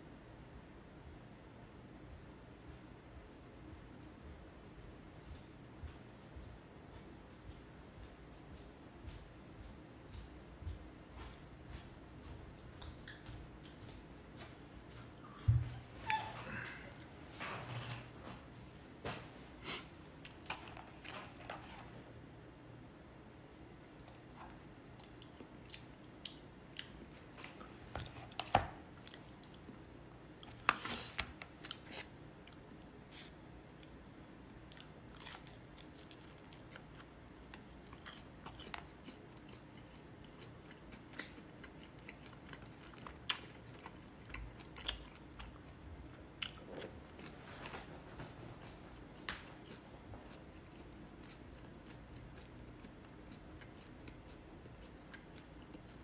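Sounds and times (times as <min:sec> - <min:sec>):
person chewing food: 0:05.4 - 0:17.4, 0:23.9 - 0:56.0.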